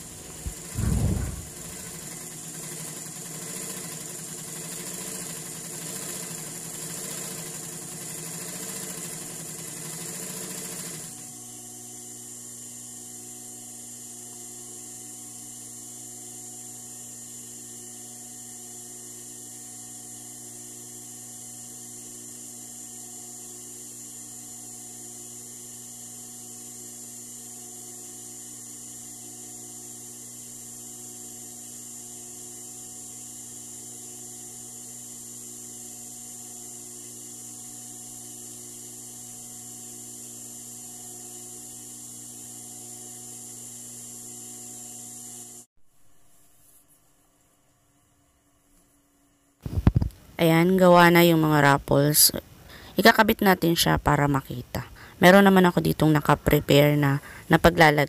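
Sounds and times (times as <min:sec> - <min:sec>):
sewing machine stitching: 0:00.0 - 0:11.2
steady motor hum: 0:00.0 - 0:45.7, 0:49.4 - 0:58.0.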